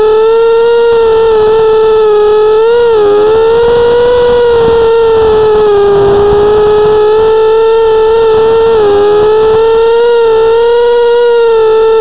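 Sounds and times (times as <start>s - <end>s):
quadcopter motors whining: 0.0s - 12.0s.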